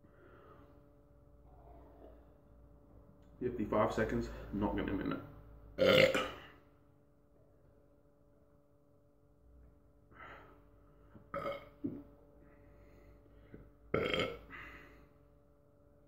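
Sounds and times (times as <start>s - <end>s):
man burping: 5.8s - 6.6s, 11.2s - 12.1s, 13.5s - 14.8s.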